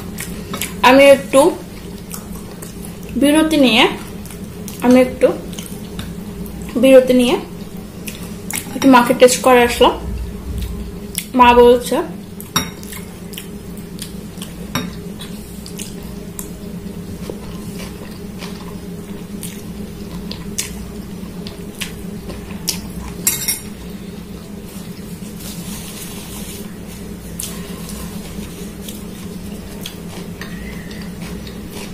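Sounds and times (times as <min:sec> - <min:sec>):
steady low hum: 0:00.0 - 0:31.9
metal cutlery clinking on glass bowl: 0:23.2 - 0:23.7.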